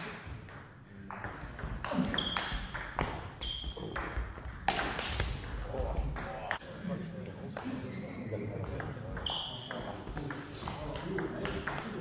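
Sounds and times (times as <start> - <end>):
shoes squeaking on floor: 1.9 - 2.7, 3.3 - 4.0, 9.2 - 10.1.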